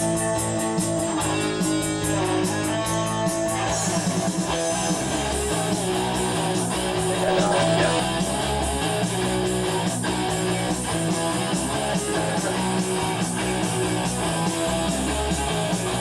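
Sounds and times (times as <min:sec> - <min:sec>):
rock band playing: 0:00.0 - 0:16.0
strummed electric guitar: 0:00.0 - 0:16.0
sustained bass line: 0:00.0 - 0:16.0.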